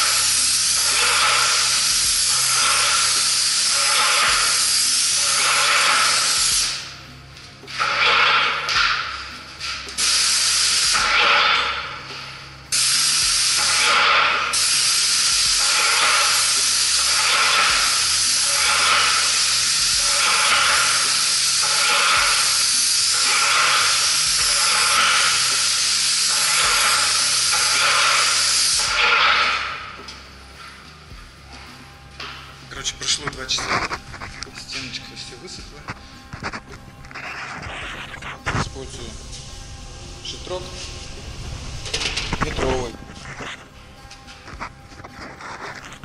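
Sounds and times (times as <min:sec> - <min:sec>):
spray gun hissing: 0:00.0 - 0:07.0, 0:07.7 - 0:30.0.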